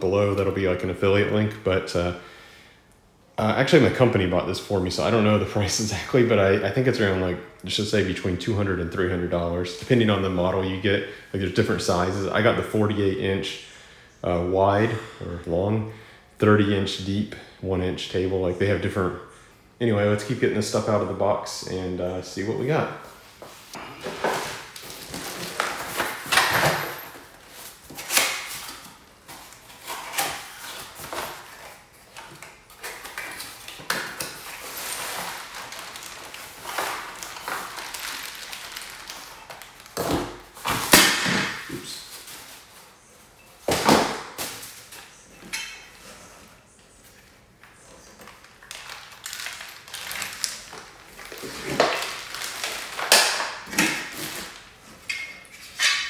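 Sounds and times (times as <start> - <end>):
plastic bag rustling: 23.1 - 43.0, 48.0 - 55.0.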